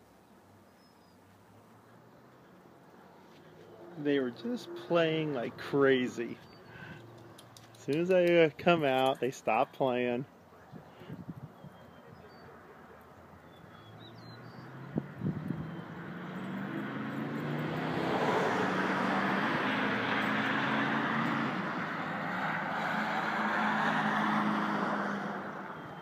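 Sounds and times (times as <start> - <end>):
vehicle engine passing: 13.2 - 26.0.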